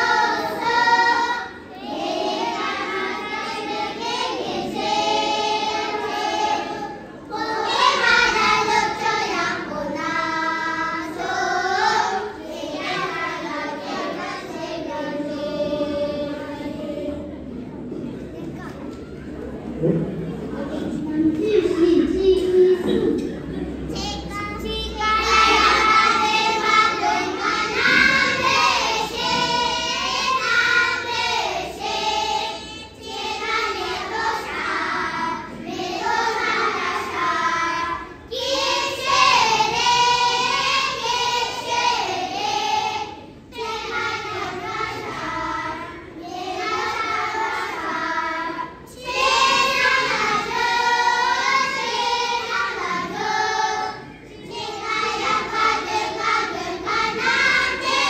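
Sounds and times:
children singing: 0:00.0 - 0:18.1, 0:19.6 - 0:58.0.

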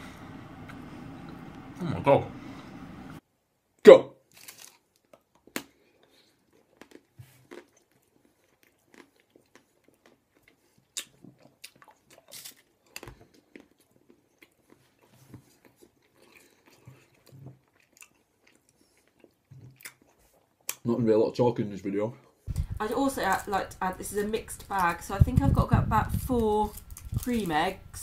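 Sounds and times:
person biting and chewing: 0:04.3 - 0:20.8.

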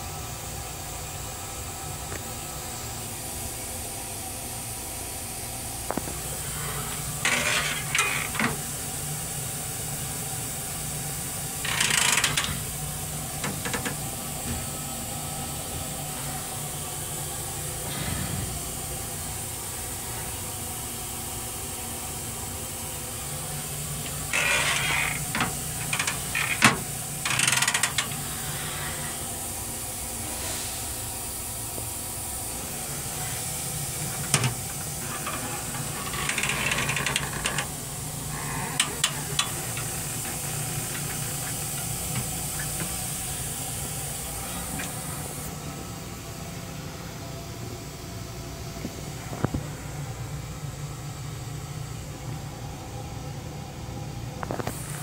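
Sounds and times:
steady hum and hiss: 0:00.0 - 0:55.0
short hissing bursts: 0:05.3 - 0:13.4, 0:23.2 - 0:45.5.

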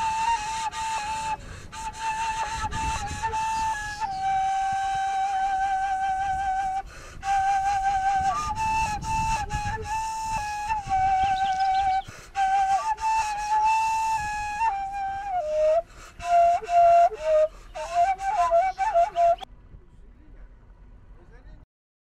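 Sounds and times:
solo flute melody: 0:00.0 - 0:19.5.

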